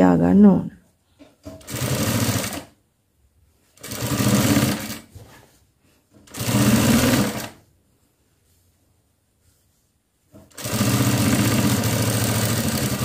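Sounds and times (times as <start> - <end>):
sewing machine stitching: 1.4 - 2.8, 3.8 - 5.1, 6.2 - 7.6, 10.4 - 13.0.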